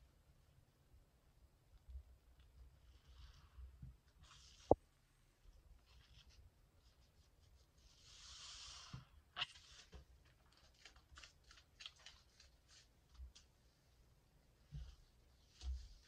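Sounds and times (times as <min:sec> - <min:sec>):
soft hiss: 0:01.7 - 0:10.2
wet squishing of soapy sponges: 0:06.9 - 0:13.5
crackling of foam bubbles: 0:09.4 - 0:13.4.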